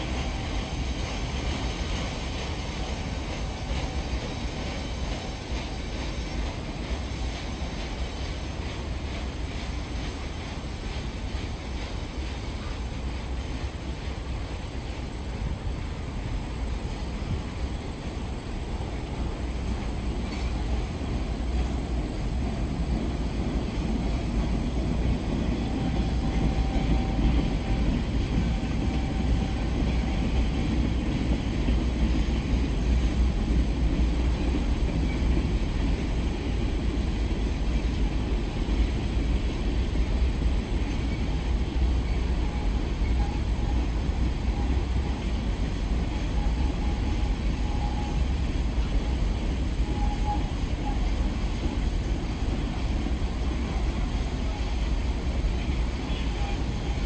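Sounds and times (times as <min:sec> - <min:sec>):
freight train rolling past: 0:00.0 - 0:57.0
faint thin squeal: 0:40.9 - 0:45.1, 0:49.8 - 0:51.2.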